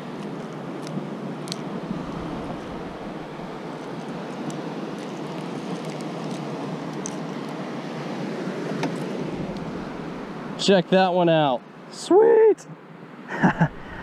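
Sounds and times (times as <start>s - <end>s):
wind: 0.0s - 14.0s
low surf: 1.4s - 5.7s, 6.7s - 11.6s.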